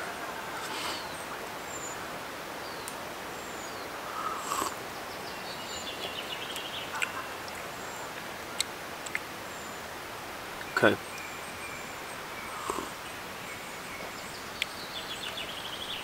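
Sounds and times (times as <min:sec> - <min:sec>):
background hiss: 0:00.0 - 0:16.0
birds chirping: 0:00.0 - 0:16.0
bird trill: 0:10.6 - 0:16.0.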